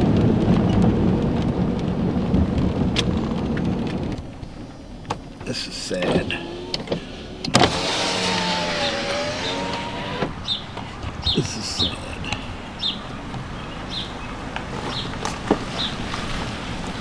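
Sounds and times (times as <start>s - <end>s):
car running noise: 0.0s - 17.0s
power window motor whine: 6.2s - 10.3s.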